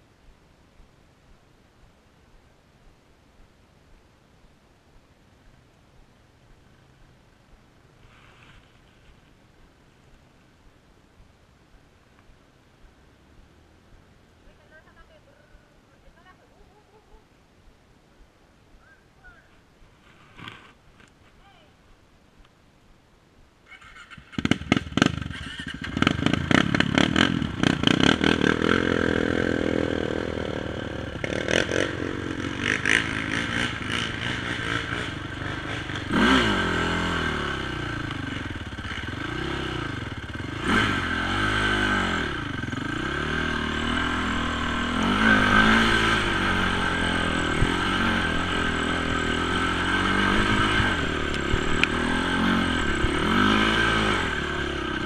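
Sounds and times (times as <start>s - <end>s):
quad engine revving: 24.0s - 55.0s.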